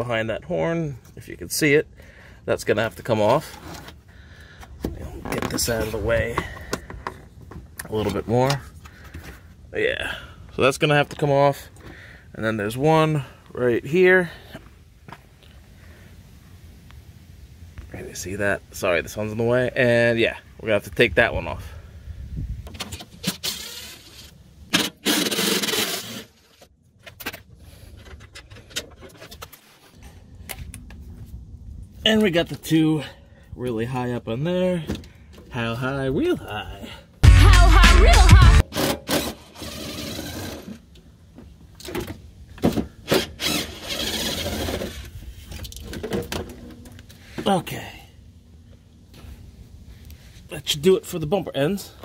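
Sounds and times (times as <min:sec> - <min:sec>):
cordless drill spinning: 0:23.2 - 0:24.3, 0:25.0 - 0:26.6, 0:38.8 - 0:40.8, 0:43.2 - 0:45.1
cordless drill running: 0:43.3 - 0:44.8.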